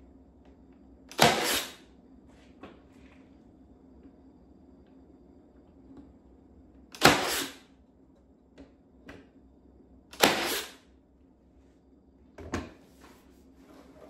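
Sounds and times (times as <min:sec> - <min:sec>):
nail gun firing: 0:01.1 - 0:01.8, 0:07.0 - 0:07.6, 0:10.1 - 0:10.8.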